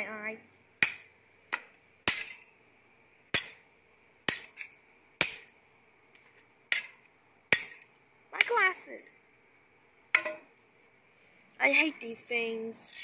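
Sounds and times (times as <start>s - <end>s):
stick striking toys: 10.2s - 10.4s.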